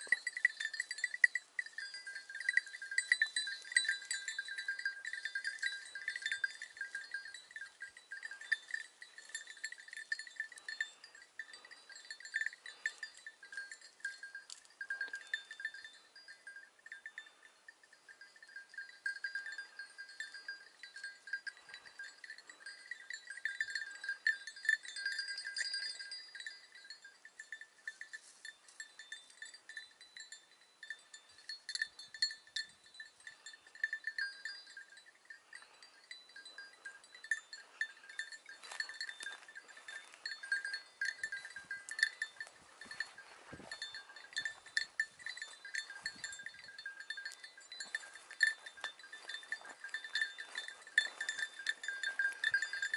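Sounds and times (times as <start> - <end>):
small metal bells jingling: 0.0 - 52.9.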